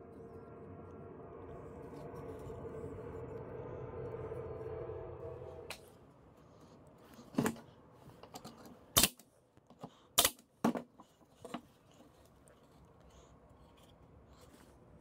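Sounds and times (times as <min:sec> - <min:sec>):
nail gun shots: 0:10.2 - 0:10.4.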